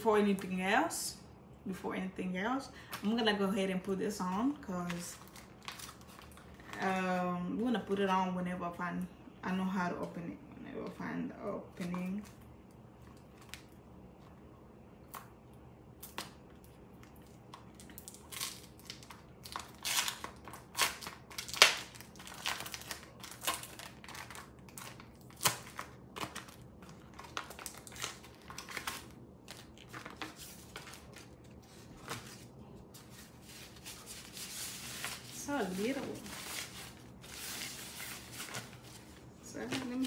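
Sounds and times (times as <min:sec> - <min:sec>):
plastic packaging crinkling: 0:04.3 - 0:07.0, 0:17.2 - 0:40.0.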